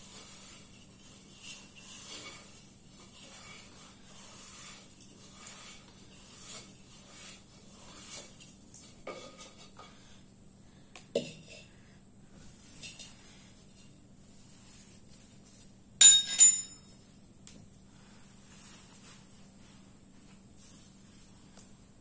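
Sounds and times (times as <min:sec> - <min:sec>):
faint scraping and clinks: 0:00.2 - 0:10.2, 0:12.4 - 0:17.2.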